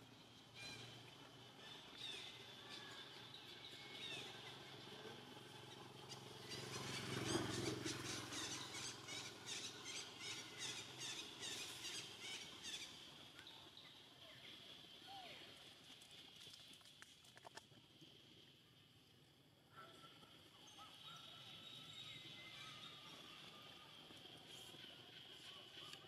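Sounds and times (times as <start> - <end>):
high chirping animal calls: 5.7 - 14.0.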